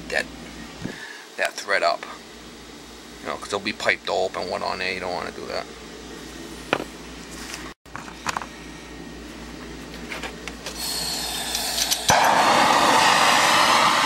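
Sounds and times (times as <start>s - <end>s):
gas torch hissing: 10.6s - 14.0s
torch lighting pop: 11.8s - 14.0s.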